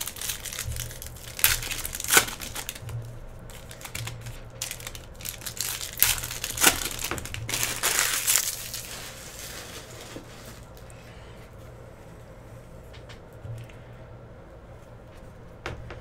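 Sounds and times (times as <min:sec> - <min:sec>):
foil wrapper crinkling: 0:00.0 - 0:11.0.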